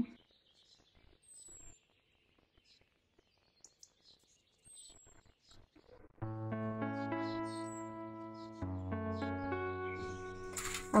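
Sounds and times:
faint small clicks: 3.6 - 4.0
music with held notes: 6.2 - 11.0.

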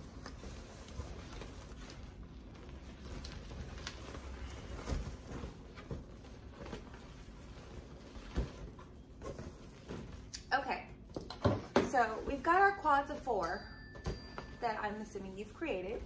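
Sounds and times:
balloons rubbing and knocking: 0.0 - 10.3.

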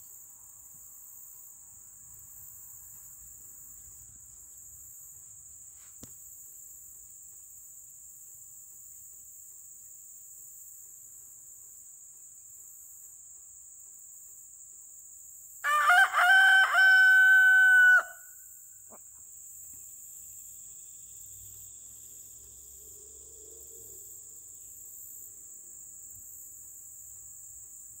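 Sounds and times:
crickets chirring: 0.0 - 28.0
rooster crowing: 15.6 - 18.4.

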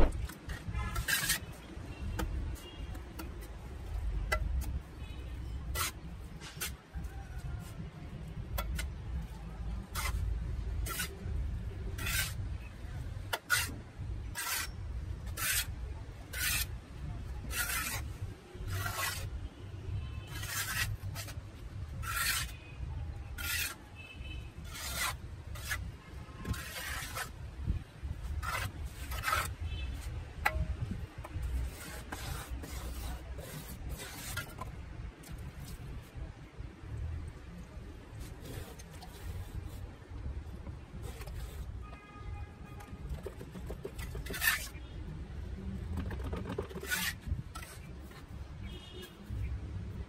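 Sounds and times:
trowel scraping cement: 0.4 - 1.7, 5.6 - 7.8, 8.5 - 10.2, 10.8 - 11.4, 12.0 - 12.4, 13.3 - 19.4, 20.3 - 22.6, 23.2 - 23.9, 24.6 - 27.4, 28.2 - 30.6, 31.5 - 34.7, 38.2 - 39.9, 41.0 - 41.8, 42.9 - 44.8, 45.8 - 48.3.

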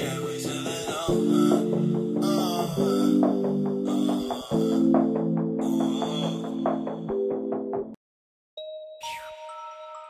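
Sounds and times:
trap beat: 0.0 - 7.2.

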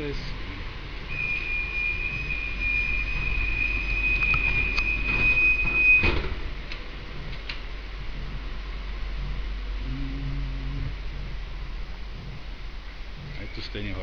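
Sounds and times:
high warning beep: 1.1 - 6.2
tram doors shutting knock: 1.1 - 8.6.

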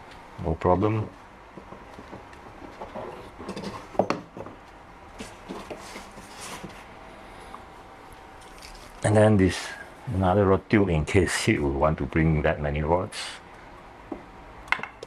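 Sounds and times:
rustling and scraping: 1.6 - 7.0, 8.4 - 9.2.

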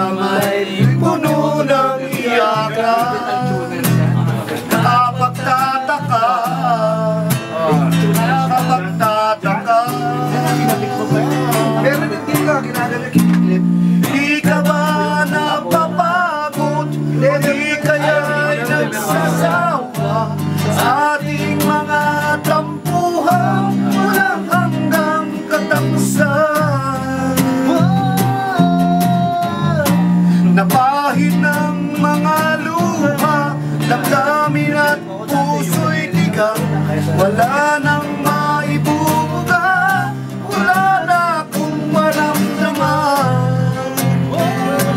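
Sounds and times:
acoustic guitars strummed: 0.0 - 44.9
sliding guitar melody: 0.0 - 44.9.

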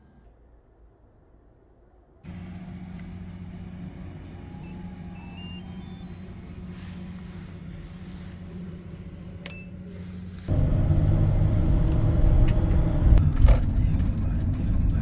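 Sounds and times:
steady low hum: 2.3 - 15.0
short electronic beeps: 4.6 - 6.4.

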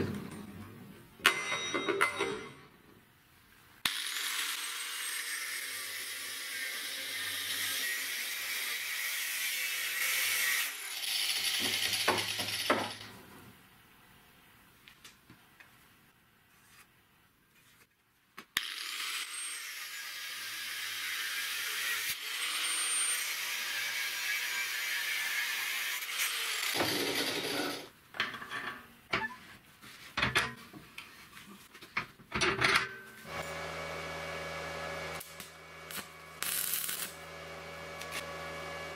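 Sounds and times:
angle grinder cutting steel pipe: 3.9 - 12.7, 18.6 - 27.9, 33.3 - 38.9.

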